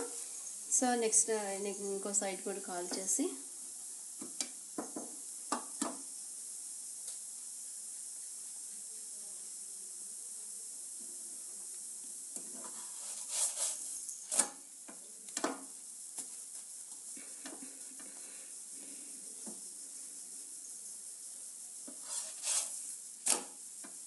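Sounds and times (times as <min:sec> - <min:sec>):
flatbread sizzling in a frying pan: 0:00.0 - 0:24.0
spatula scraping and knocking pan: 0:21.9 - 0:22.8.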